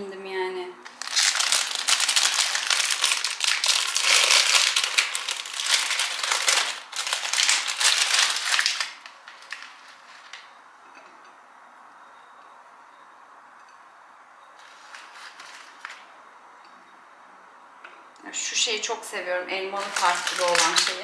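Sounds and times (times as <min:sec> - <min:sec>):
plastic wrappers crinkling: 0:00.8 - 0:10.5, 0:14.6 - 0:16.1, 0:19.7 - 0:21.0.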